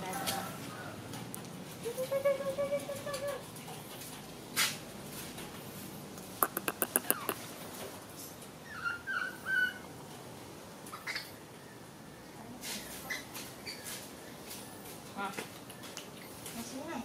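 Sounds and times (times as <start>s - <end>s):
sharp clicks: 6.4s - 7.4s
young animal squeaky calls: 6.4s - 7.4s.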